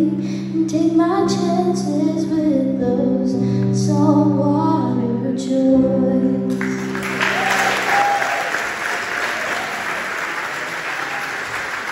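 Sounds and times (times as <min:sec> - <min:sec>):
audience applause: 0:06.5 - 0:11.9.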